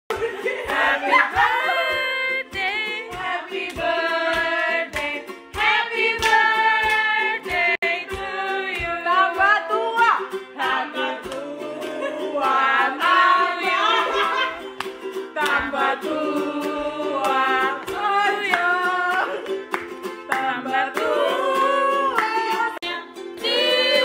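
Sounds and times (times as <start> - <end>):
hands clapping in time: 0.1 - 9.0, 14.6 - 15.8, 17.2 - 21.2
people singing: 0.2 - 19.6, 20.2 - 24.0.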